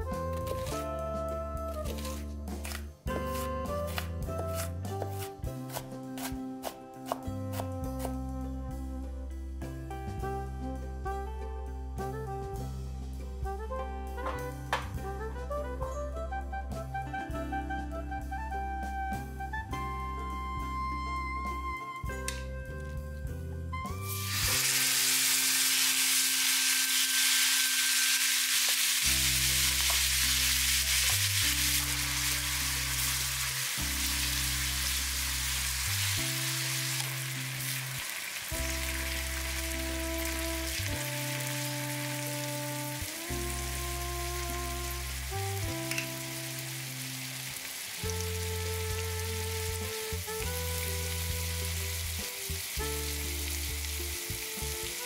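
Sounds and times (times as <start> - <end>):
background music with bass line: 0.0 - 25.3, 29.0 - 55.0
meat sizzling in frying pan: 24.1 - 55.0.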